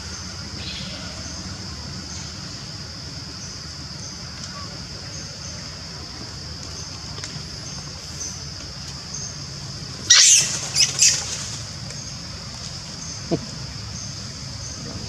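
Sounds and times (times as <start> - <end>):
high insect drone: 0.0 - 15.0
young monkeys squealing: 10.1 - 11.5.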